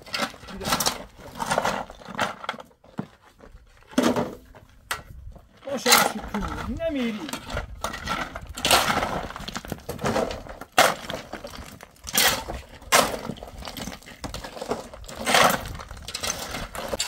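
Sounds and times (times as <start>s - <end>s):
shovels scraping hard ground: 0.0s - 3.2s, 5.6s - 17.0s
rubble tipped into metal wheelbarrow: 5.7s - 17.0s
stones clattering: 5.7s - 17.0s.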